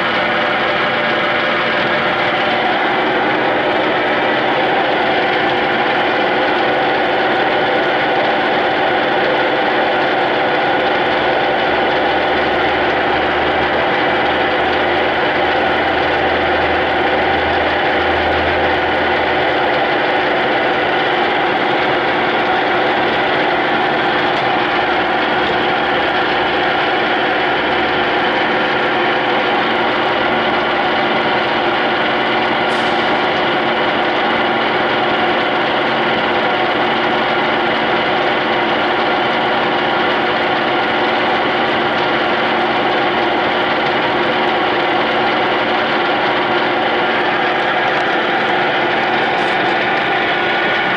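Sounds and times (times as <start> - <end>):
whining gear tones: 0.0 - 32.5
lathe mechanical hum: 0.0 - 50.9.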